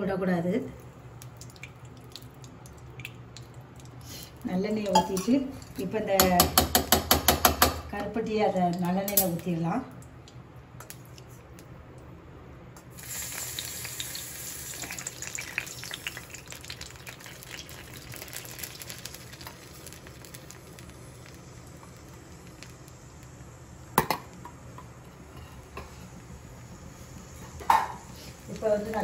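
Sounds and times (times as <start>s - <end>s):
syrup sizzling in hot oil: 12.9s - 29.0s.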